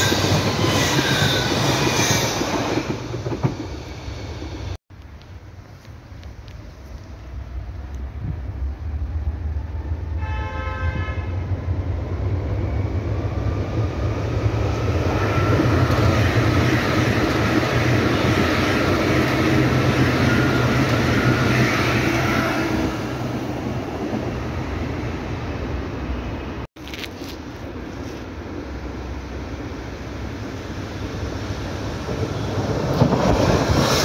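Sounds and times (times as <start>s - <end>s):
train wheels clattering on rails: 0.0s - 4.5s.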